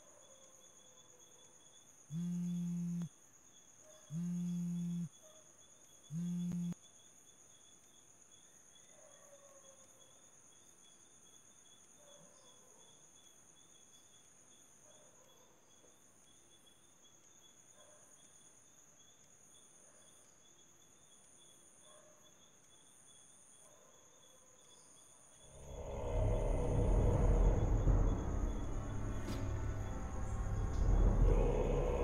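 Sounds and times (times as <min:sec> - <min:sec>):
crickets chirping: 0:00.0 - 0:32.0
mobile phone vibrating: 0:02.1 - 0:03.1, 0:04.1 - 0:05.1, 0:06.1 - 0:06.8.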